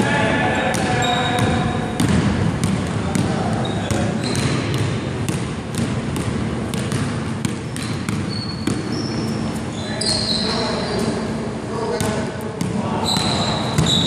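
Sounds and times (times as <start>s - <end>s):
basketball bouncing on hardwood floor: 0.7s - 9.3s.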